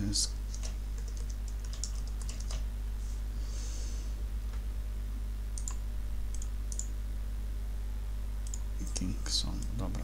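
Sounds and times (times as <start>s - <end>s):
low electrical hum: 0.0s - 10.0s
computer mouse clicks: 0.5s - 2.6s, 5.6s - 6.9s, 8.4s - 9.8s.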